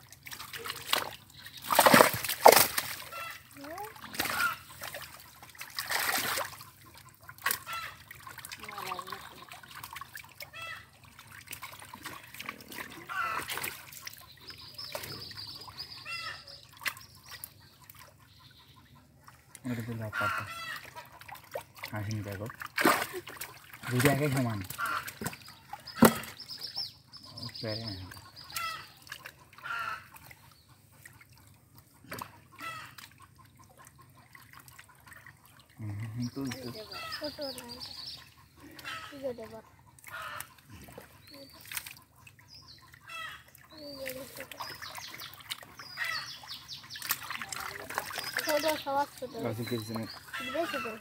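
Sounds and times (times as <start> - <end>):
fish splashing: 0.0 - 26.7, 28.1 - 51.0
water splashing and trickling: 0.0 - 51.0
bird calling: 1.3 - 4.8, 12.9 - 21.2, 23.9 - 31.0, 32.1 - 33.0, 35.8 - 51.0.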